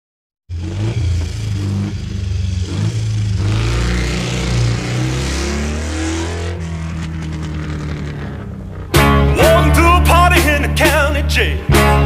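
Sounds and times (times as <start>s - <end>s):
motorcycle engine revving: 0.5s - 10.0s.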